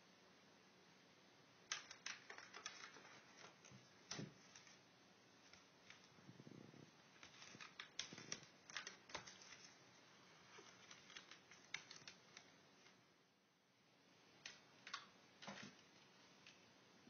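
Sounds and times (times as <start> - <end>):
faint irregular clicks and taps: 1.7 - 4.8, 5.4 - 9.8, 10.5 - 13.0, 14.4 - 16.7.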